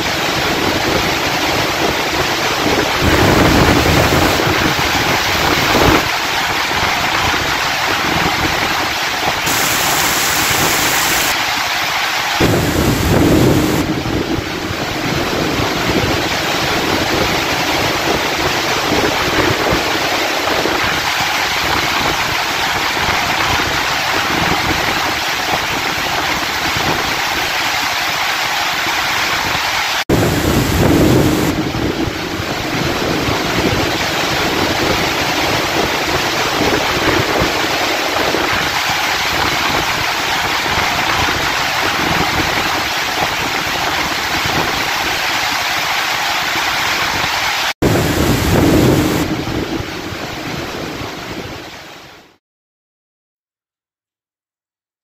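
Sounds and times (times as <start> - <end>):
heavy rain on road: 0.1 - 27.4, 28.9 - 49.8
low thunder rumble: 12.4 - 14.4, 30.1 - 33.2, 47.8 - 50.0.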